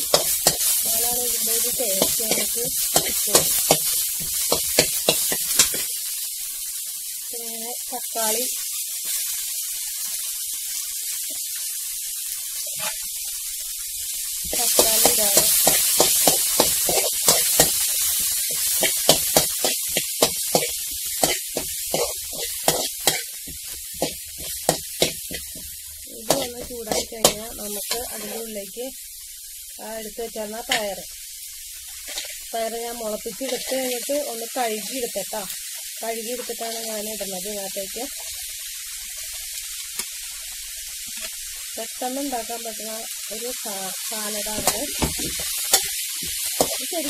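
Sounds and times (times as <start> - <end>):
steel spoon scraping a pan: 0.0 - 5.9, 12.6 - 13.1, 14.5 - 25.7, 26.3 - 28.5, 31.9 - 32.4, 33.4 - 34.1, 44.5 - 46.9
onions sizzling in a pan: 0.0 - 47.0
metal spoon scraping frying pan: 18.5 - 23.3, 32.0 - 32.4.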